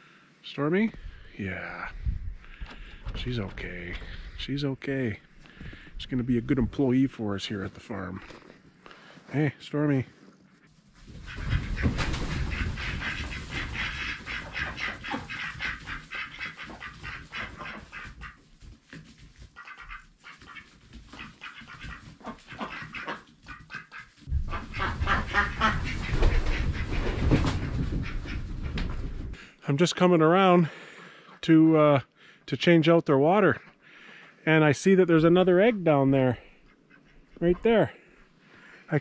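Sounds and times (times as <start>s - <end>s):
low rumbling: 0.9s - 7.4s
ducks quacking: 11.1s - 18.5s, 19.5s - 29.4s.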